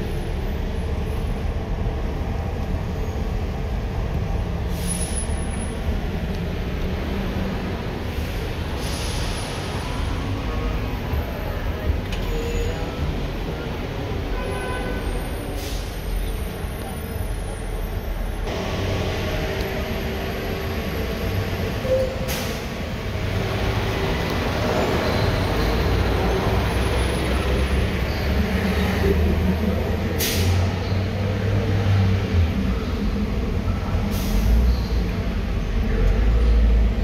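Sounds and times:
traffic rumble from inside a car: 0.3 - 31.5
brief hisses: 8.8 - 9.6.

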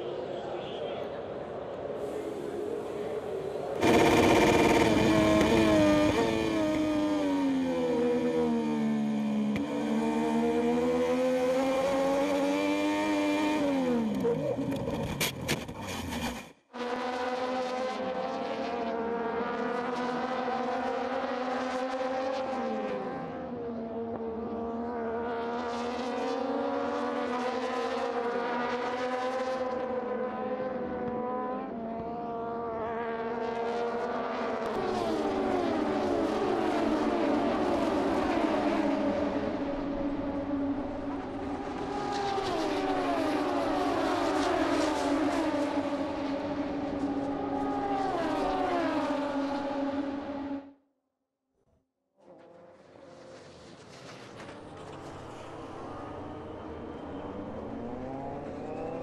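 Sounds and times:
racing motorcycles passing: 2.6 - 14.9, 16.9 - 50.7, 52.2 - 59.0.

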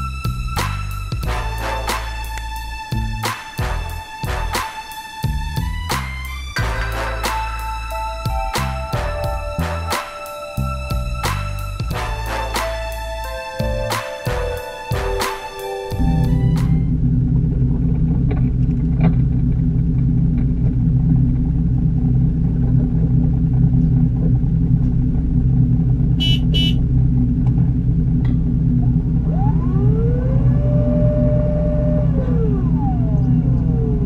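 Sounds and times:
boat engine droning: 0.0 - 34.0
short high beeps: 26.2 - 26.8.

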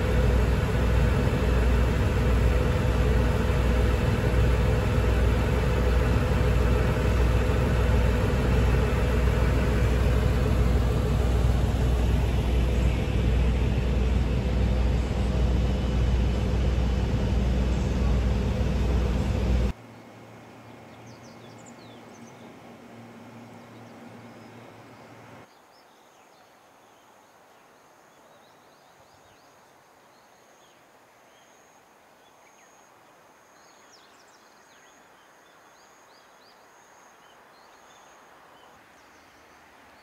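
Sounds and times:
loud railcar engine: 0.0 - 25.5
low steady hum: 0.0 - 25.5
birds chirping: 0.0 - 26.4.

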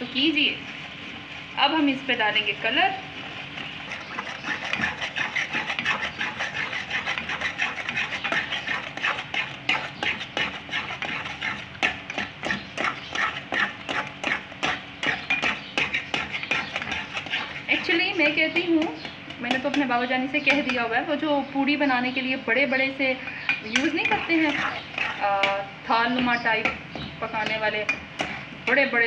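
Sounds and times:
metal spatula scraping a pan: 0.0 - 21.1, 23.2 - 29.0
frying sizzle: 0.0 - 21.2.

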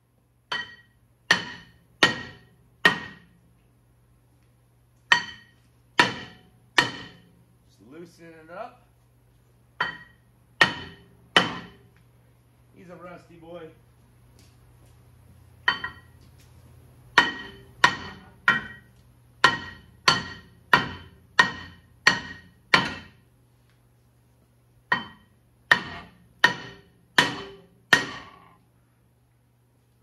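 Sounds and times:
hammer striking metal: 0.5 - 3.4, 5.1 - 7.3, 9.8 - 11.9, 15.6 - 16.1, 17.2 - 23.2, 24.9 - 28.5.

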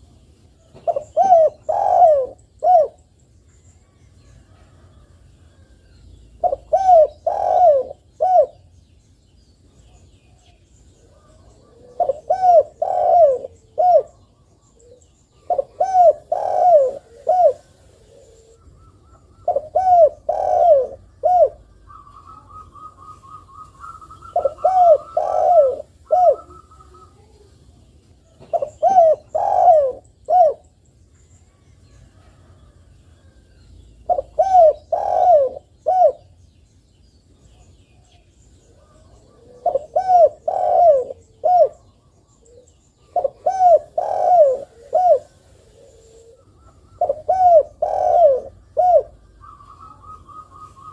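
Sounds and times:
dove cooing: 0.6 - 3.0, 6.4 - 8.7, 11.0 - 27.5, 28.3 - 30.8, 34.0 - 36.4, 38.0 - 50.9
bird twittering: 11.7 - 27.3, 45.9 - 50.9.

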